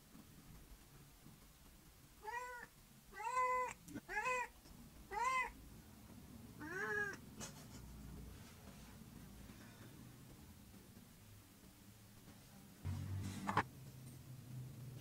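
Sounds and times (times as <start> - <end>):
cat meowing: 2.2 - 5.6, 6.6 - 7.2.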